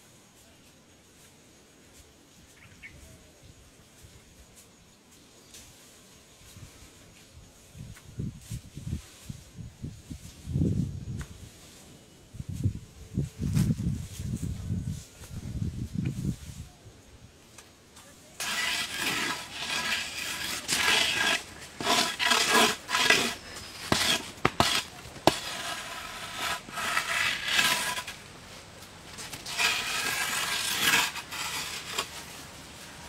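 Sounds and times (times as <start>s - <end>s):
bamboo pole scraping on dirt: 18.4s - 33.0s.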